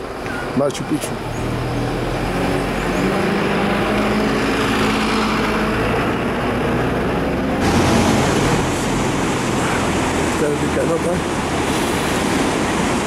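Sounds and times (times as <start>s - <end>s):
bus engine droning: 0.0s - 13.0s
river rushing over boulders: 0.0s - 13.0s.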